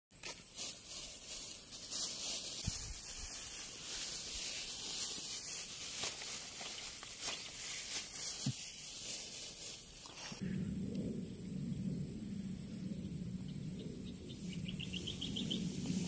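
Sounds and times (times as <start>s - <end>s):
rustling: 0.2s - 10.4s.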